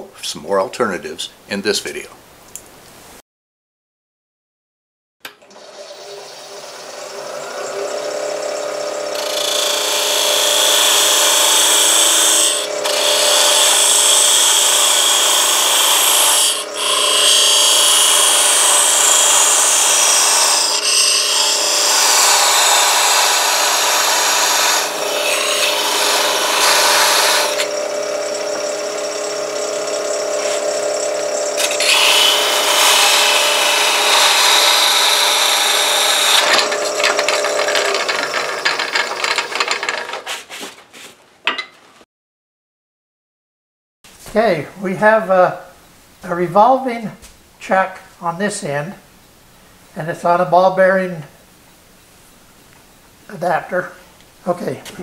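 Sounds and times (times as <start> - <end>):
lathe motor hum: 5.3 - 40.2
tool scraping spinning wood: 5.5 - 41.7.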